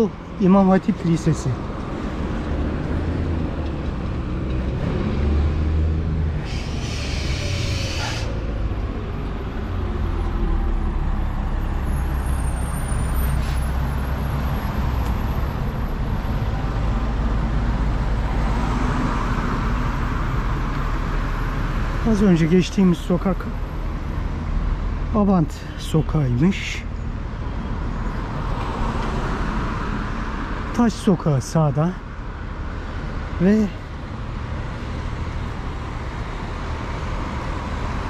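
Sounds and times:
traffic engine rumble: 0:00.0 - 0:38.0
loud hiss of air brakes: 0:06.4 - 0:08.4, 0:13.2 - 0:13.8.

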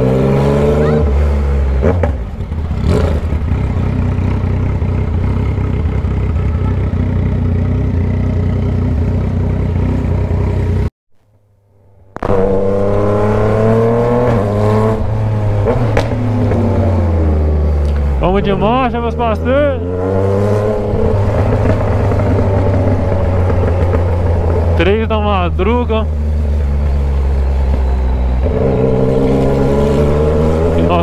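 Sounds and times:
motorcycle engine pulsing: 0:12.2 - 0:31.0.

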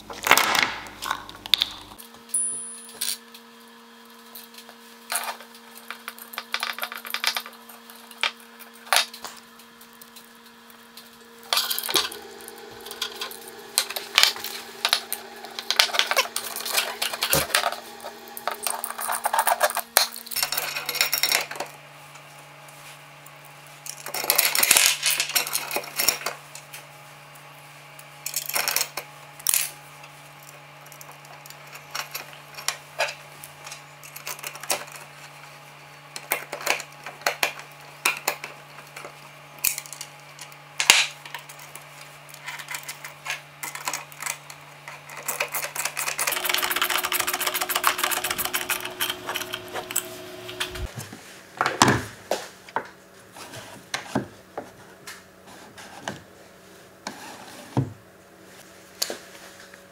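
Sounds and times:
steady low hum: 0:07.4 - 0:28.4, 0:43.2 - 0:51.1.

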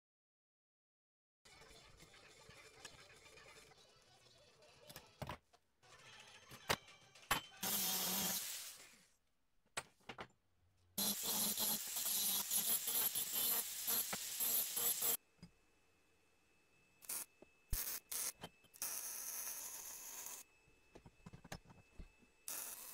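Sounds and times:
angle grinder on steel: 0:07.6 - 0:08.6, 0:11.0 - 0:15.2.

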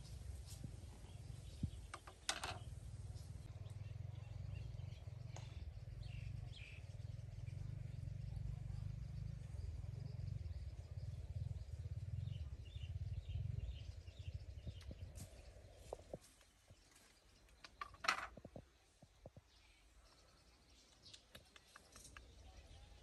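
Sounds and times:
faint bird chirps: 0:00.0 - 0:23.0
steady low rumble: 0:02.6 - 0:16.2.

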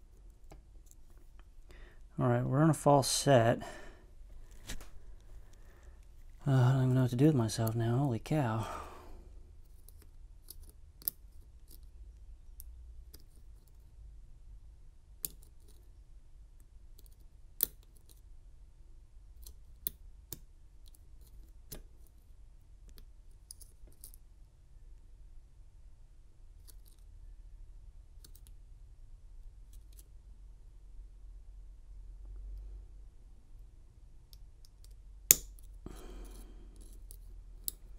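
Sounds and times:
lock pick metallic clicks: 0:34.3 - 0:37.9.

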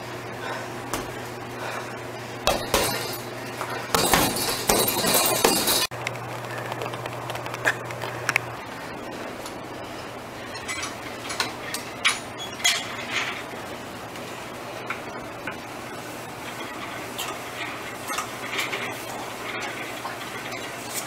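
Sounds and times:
steady low hum: 0:00.0 - 0:21.0
metal chain clinking: 0:02.5 - 0:03.3, 0:04.0 - 0:05.9.

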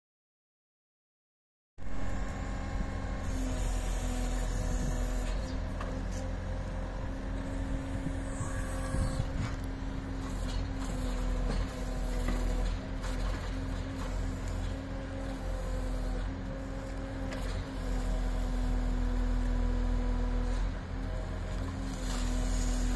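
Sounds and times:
diesel engine running: 0:01.8 - 0:22.9
hydraulics whining: 0:01.9 - 0:17.3.

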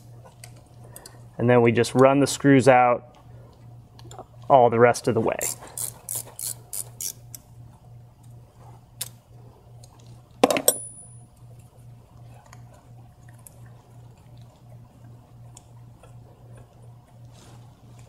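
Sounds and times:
ratchet clicking: 0:05.4 - 0:07.4.

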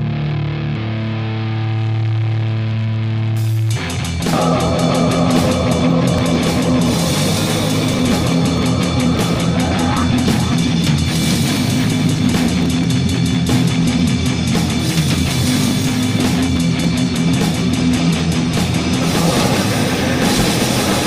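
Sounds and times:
heavily distorted guitar: 0:00.0 - 0:21.0
fast pounding drums: 0:03.9 - 0:21.0
harsh noise layer: 0:04.0 - 0:14.2, 0:14.8 - 0:21.0.

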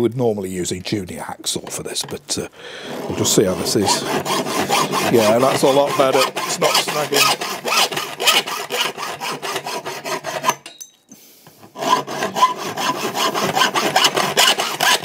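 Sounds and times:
hacksaw cutting copper pipe: 0:02.8 - 0:10.9, 0:11.5 - 0:15.0.

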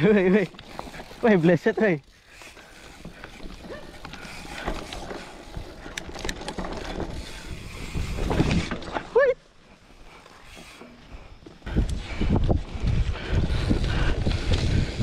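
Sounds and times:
bike rattling clicks: 0:00.0 - 0:09.2, 0:09.8 - 0:15.0
bike tyres on dirt trail: 0:00.0 - 0:15.0
wind on microphone: 0:07.0 - 0:08.8, 0:11.6 - 0:15.0.

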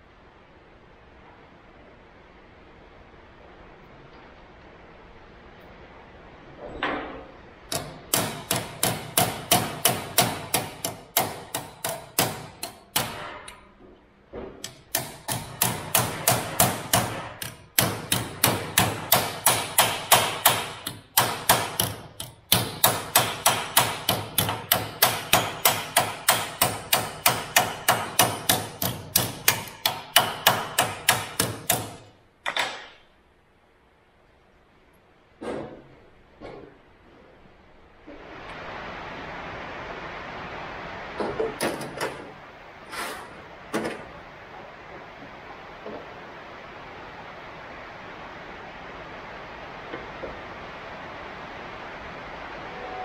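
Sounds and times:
hammer striking sheet metal: 0:07.0 - 0:13.7, 0:14.4 - 0:33.0.

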